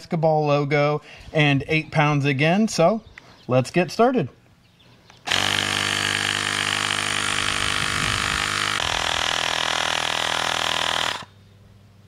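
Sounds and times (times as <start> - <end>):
air compressor running: 5.3 - 11.3.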